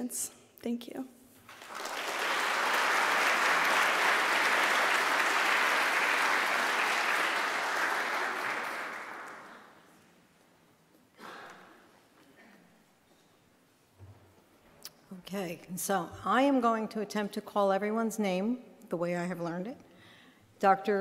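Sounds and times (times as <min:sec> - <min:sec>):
audience applauding: 0:01.5 - 0:09.9.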